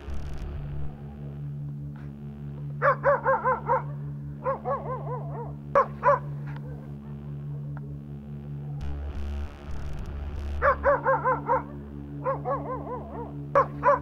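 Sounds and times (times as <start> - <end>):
steady low hum: 0.0 - 14.0
dogs barking: 2.7 - 7.8, 10.5 - 14.0.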